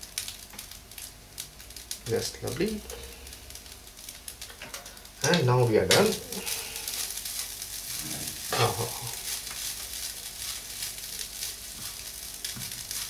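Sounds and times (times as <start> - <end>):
faint sizzle from pan: 0.0 - 13.0
person humming: 8.0 - 9.2.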